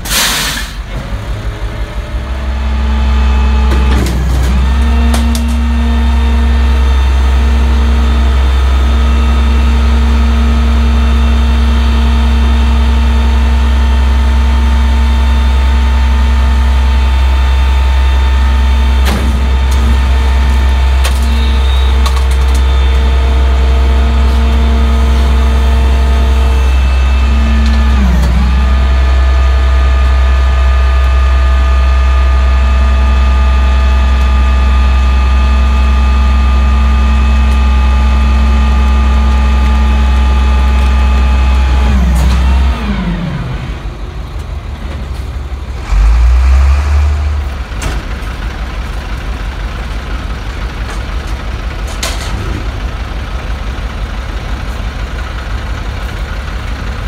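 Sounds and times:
garbage truck engine running: 0:00.0 - 0:57.0.

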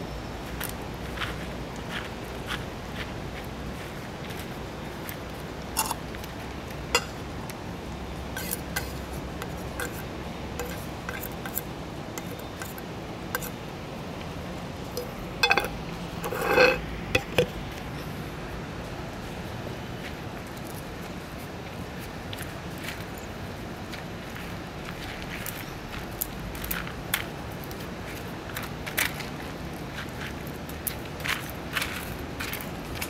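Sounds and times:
plastic spoon scraping metal can: 0:08.4 - 0:09.0, 0:09.8 - 0:10.0, 0:10.6 - 0:11.6, 0:15.0 - 0:17.5.

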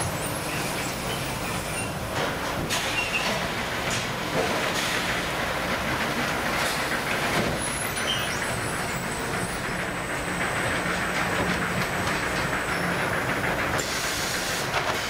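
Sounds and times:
factory machinery running: 0:00.0 - 0:15.0.

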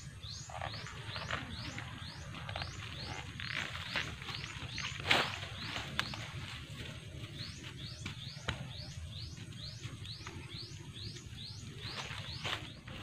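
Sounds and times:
leaves rustling and snapping: 0:02.4 - 0:06.4.

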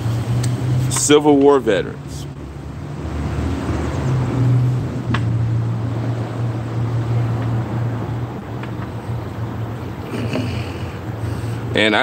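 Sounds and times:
outdoor rumble: 0:00.0 - 0:12.0.

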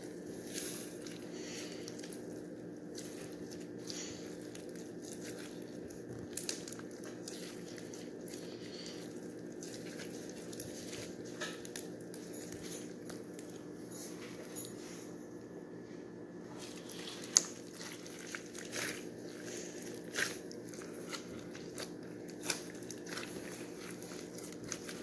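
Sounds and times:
slime squished by hand: 0:16.6 - 0:25.0.

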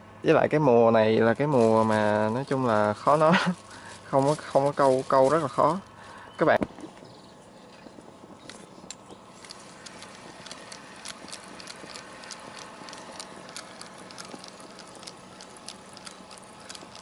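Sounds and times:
fishing reel clicking: 0:08.9 - 0:17.0.

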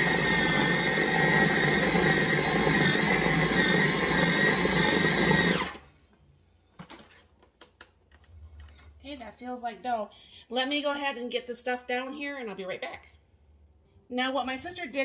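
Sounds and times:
food processor running: 0:00.0 - 0:05.9.

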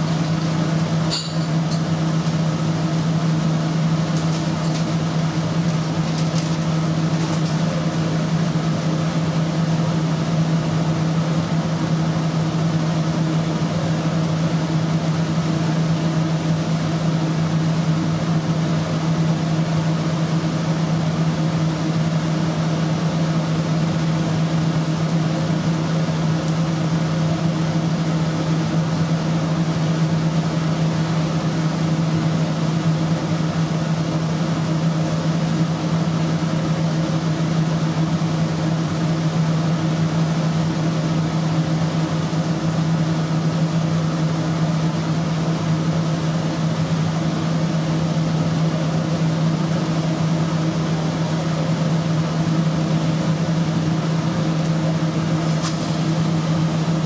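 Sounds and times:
kitchen machinery droning: 0:00.0 - 0:07.1.

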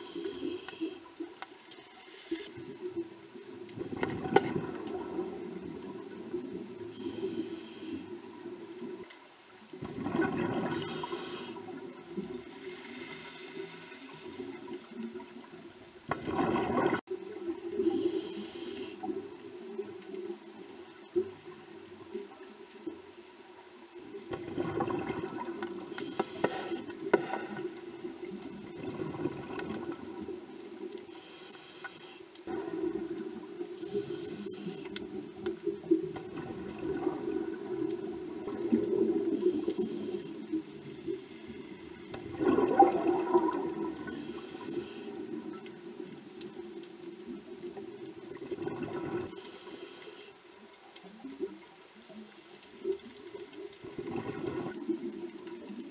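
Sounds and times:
hissing regulator inhalations: 0:00.0 - 0:01.2, 0:06.9 - 0:08.1, 0:10.6 - 0:11.8, 0:17.8 - 0:19.1, 0:25.9 - 0:27.6, 0:31.0 - 0:32.4, 0:33.7 - 0:35.0, 0:39.3 - 0:40.5, 0:44.1 - 0:45.3, 0:49.3 - 0:50.4
bubbling exhalations: 0:42.2 - 0:44.1.

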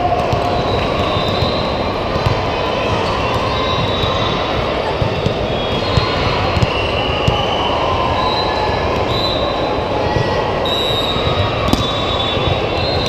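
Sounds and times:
din of indoor sports hall: 0:00.0 - 0:13.0
balls being hit: 0:00.2 - 0:04.2, 0:11.3 - 0:12.8.

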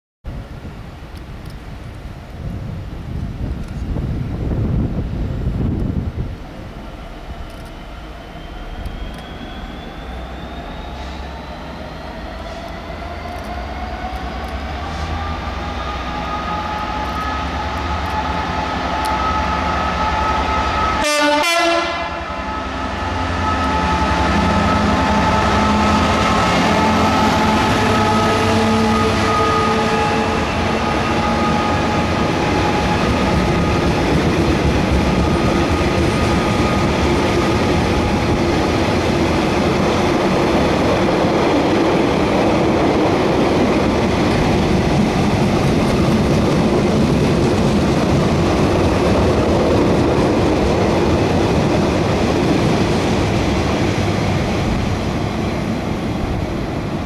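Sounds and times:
diesel locomotive engine: 0:00.3 - 0:57.0
two-tone train horn: 0:15.8 - 0:32.9.

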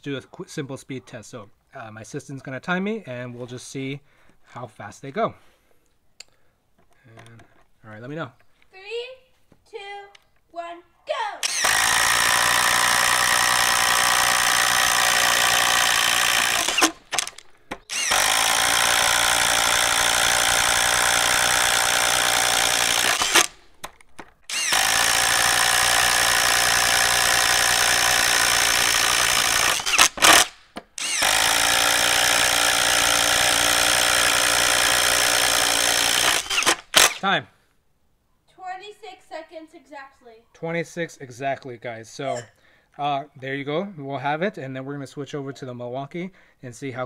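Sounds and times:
impact driver boring wood: 0:11.4 - 0:23.6, 0:24.5 - 0:37.3.

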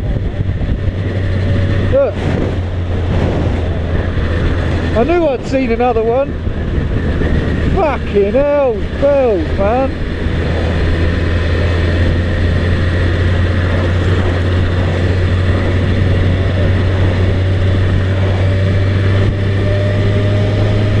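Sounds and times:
motorcycle engine running: 0:00.0 - 0:21.0
wind and road noise: 0:00.0 - 0:21.0.

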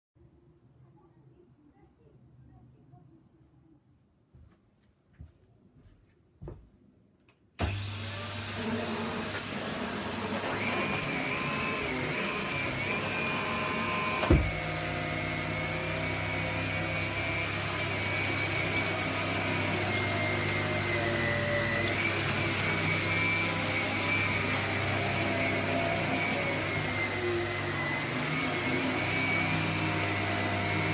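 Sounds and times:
vacuum cleaner motor whining: 0:07.6 - 0:30.9
thump: 0:14.2 - 0:14.6.

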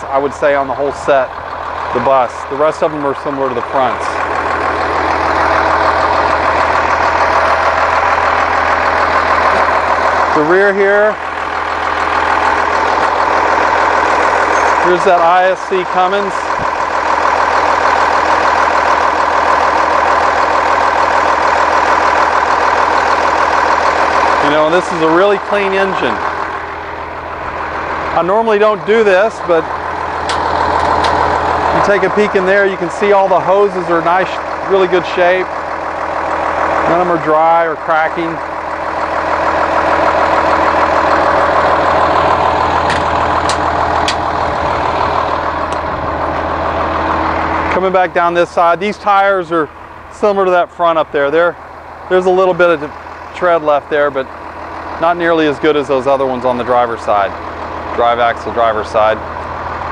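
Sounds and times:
diesel engine idling: 0:00.0 - 0:59.9
sharp clicks: 0:30.2 - 0:31.3, 0:42.8 - 0:44.4.

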